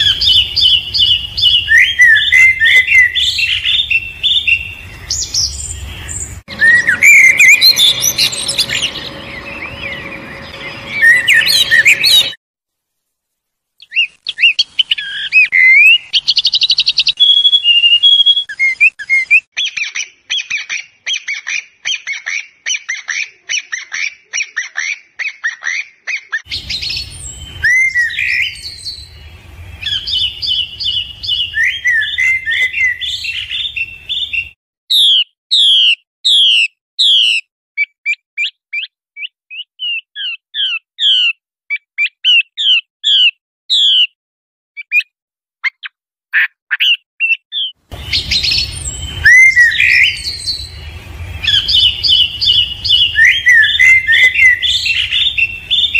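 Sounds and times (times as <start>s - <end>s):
bird whistling downward notes: 0.0s - 12.4s, 13.8s - 19.8s, 26.5s - 35.2s, 47.6s - 55.9s
birds singing: 0.0s - 12.4s, 13.8s - 37.4s, 46.8s - 55.9s
low hum: 3.1s - 12.4s, 26.5s - 34.1s, 47.9s - 55.9s.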